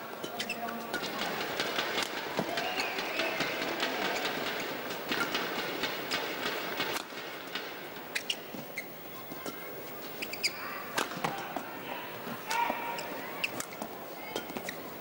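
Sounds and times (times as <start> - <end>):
shoes squeaking on court floor: 0.0 - 5.4, 8.1 - 11.6, 12.2 - 15.0
crowd noise: 0.0 - 15.0
rackets striking shuttlecock: 0.2 - 8.9.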